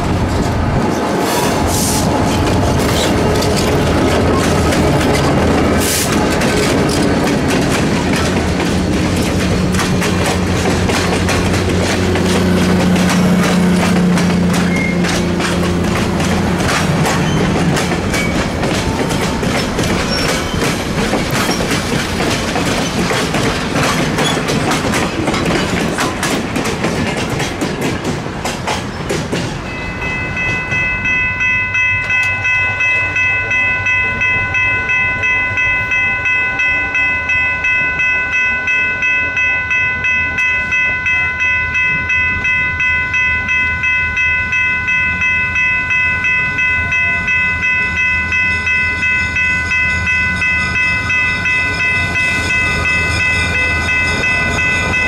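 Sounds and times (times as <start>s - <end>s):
train wheels clicking over rail joints: 0.0s - 32.4s
diesel locomotive engine drone: 0.0s - 55.0s
railroad crossing bell ringing: 2.0s - 27.7s, 29.4s - 55.0s.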